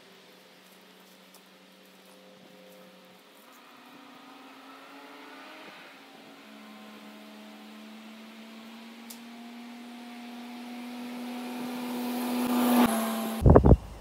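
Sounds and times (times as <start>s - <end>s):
engine running with whine: 0.0s - 14.0s
loud low thumps and rumbling: 13.4s - 14.0s.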